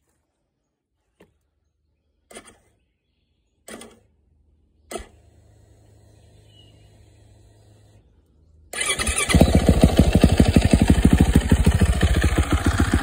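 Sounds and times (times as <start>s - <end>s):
faint mechanical hum: 2.3s - 8.8s.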